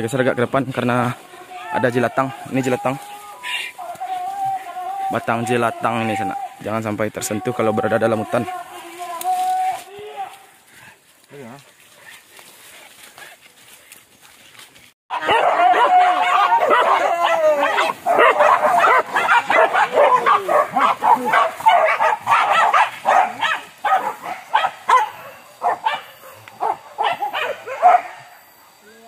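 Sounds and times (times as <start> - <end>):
dogs yelping and barking: 15.1 - 28.6.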